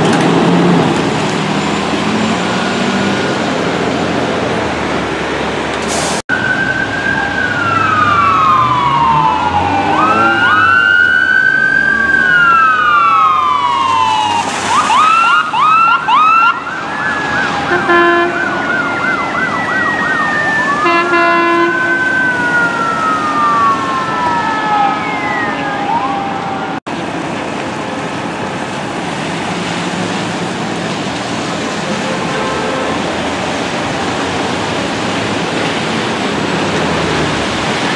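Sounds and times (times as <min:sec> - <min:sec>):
traffic hiss on wet street: 0:00.2 - 0:06.6, 0:12.9 - 0:19.8, 0:26.9 - 0:37.9
sirens wailing and yelping: 0:06.3 - 0:26.9
horn blasts: 0:17.7 - 0:18.4, 0:20.8 - 0:22.0, 0:31.8 - 0:33.1.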